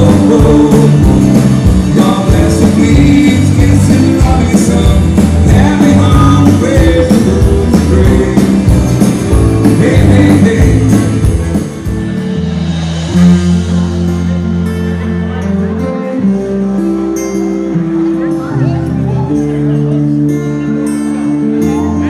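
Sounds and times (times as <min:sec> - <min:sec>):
person singing: 0:00.0 - 0:11.6
rock band playing: 0:00.0 - 0:22.0.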